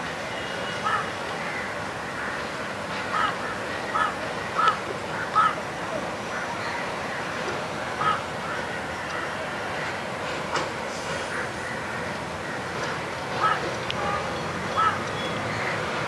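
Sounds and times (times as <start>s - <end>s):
crow cawing: 0.8s - 2.4s, 3.1s - 5.6s, 8.0s - 8.7s, 13.4s - 13.6s, 14.7s - 15.0s.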